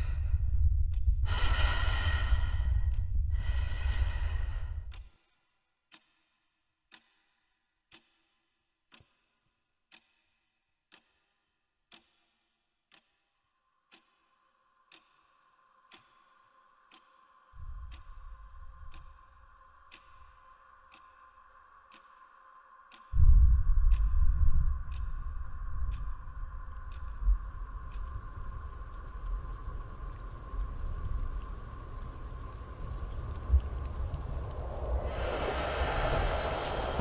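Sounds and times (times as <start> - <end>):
low rumble: 0.0 - 5.0, 17.6 - 20.0, 23.2 - 37.0
clock ticking: 0.4 - 5.1, 5.9 - 30.3
heavy breaths: 1.2 - 5.0, 35.0 - 37.0.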